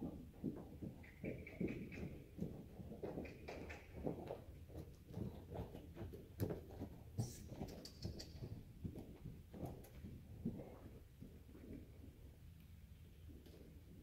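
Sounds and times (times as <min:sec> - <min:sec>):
horse hoofbeats on soft ground: 0:00.0 - 0:14.0.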